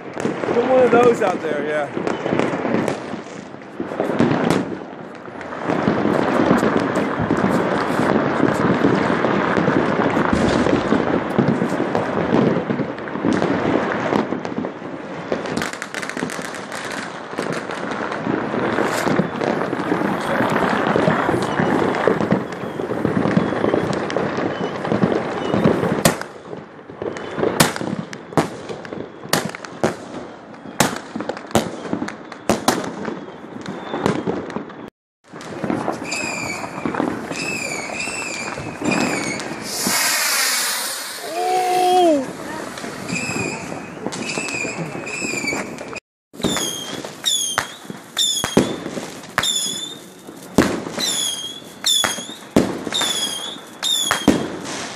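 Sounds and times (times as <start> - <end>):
firecrackers crackling and banging: 0.0 - 54.9
whistling fireworks shrieking: 0.0 - 54.9.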